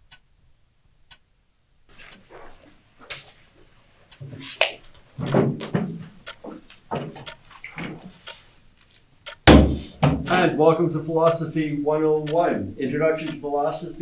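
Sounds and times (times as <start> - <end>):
knocks and bumps of desks and chairs: 5.2 - 8.2, 9.4 - 10.5.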